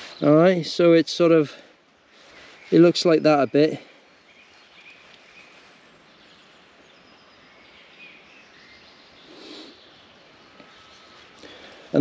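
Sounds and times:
faint bird chirps: 0.0s - 12.0s
soft rustle: 1.5s - 7.0s, 9.2s - 12.0s.

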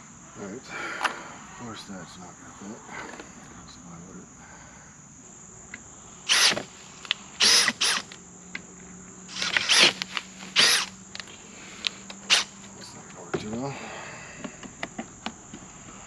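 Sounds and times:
high insect buzz: 0.0s - 16.0s
cordless drill whining: 6.3s - 6.7s, 7.4s - 8.2s, 9.3s - 11.0s, 11.8s - 12.6s.

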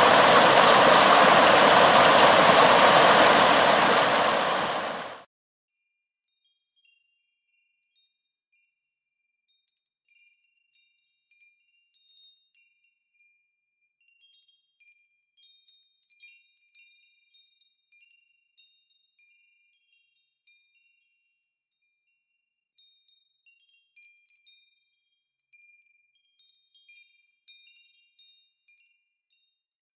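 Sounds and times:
rushing flood water: 0.0s - 5.2s.

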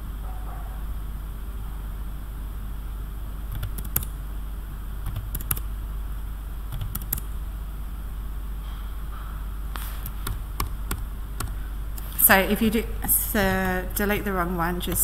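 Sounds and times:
computer mouse clicks: 3.6s - 4.1s, 5.1s - 5.6s, 6.8s - 7.3s.

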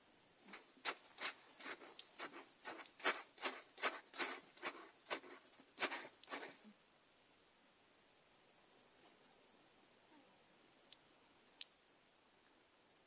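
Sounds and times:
cat snorting and sniffing: 0.5s - 6.7s.

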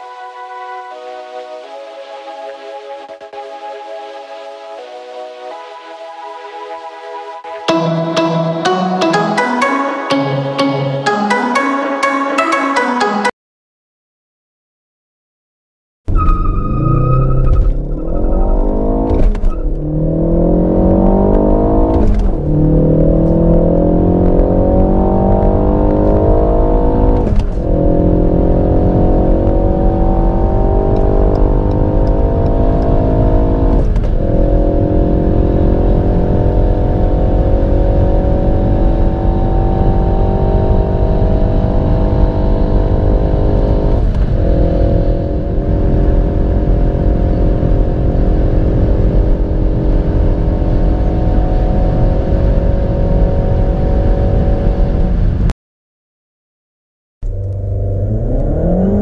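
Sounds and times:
car engine accelerating hard: 16.4s - 55.4s, 57.3s - 59.0s.

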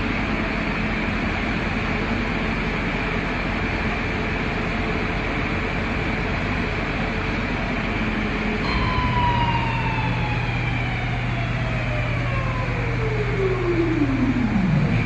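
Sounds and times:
spindle whine falling in pitch: 8.6s - 15.0s.

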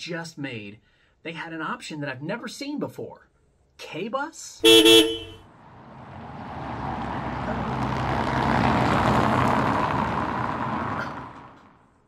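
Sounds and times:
vehicle passing by: 4.8s - 11.8s.

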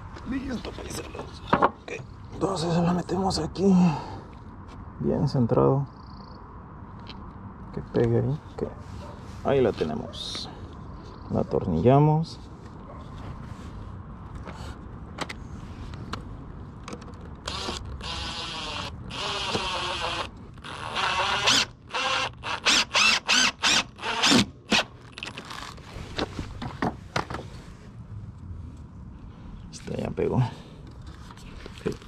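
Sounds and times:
impact driver driving screw: 17.5s - 24.9s.

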